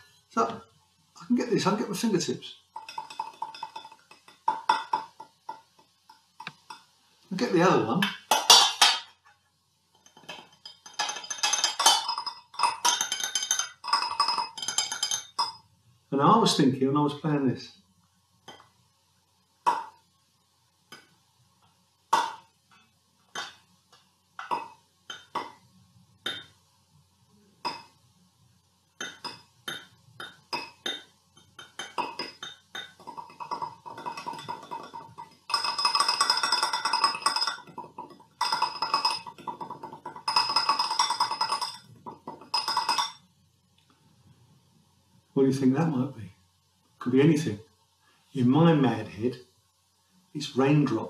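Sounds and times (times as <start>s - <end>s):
fingertips tapping metal saucepans: 2.7s - 6.9s, 9.9s - 15.6s, 29.0s - 43.3s.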